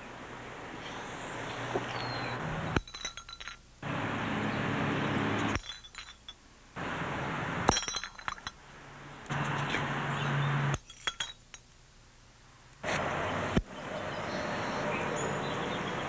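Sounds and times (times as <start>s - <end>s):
glass bottles clinking: 2.8s - 3.6s, 5.4s - 6.4s, 7.7s - 8.6s, 10.8s - 11.7s.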